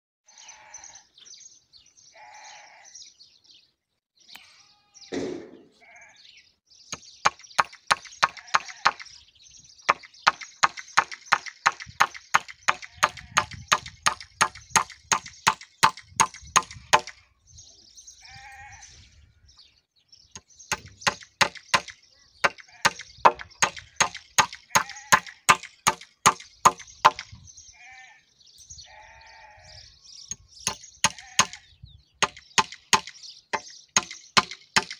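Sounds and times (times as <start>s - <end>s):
sheep bleating: 0.3s - 1.1s, 2.1s - 3.1s, 5.8s - 6.4s, 8.3s - 9.0s, 18.2s - 19.0s, 24.8s - 25.4s, 27.7s - 29.9s, 31.1s - 31.7s
hammer driving nails: 10.0s - 17.2s, 20.4s - 21.9s, 22.5s - 27.2s, 30.6s - 31.6s, 32.2s - 34.9s.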